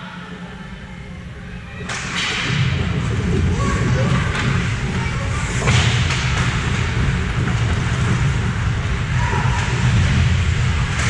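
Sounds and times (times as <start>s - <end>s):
low rink rumble: 0.0s - 11.0s.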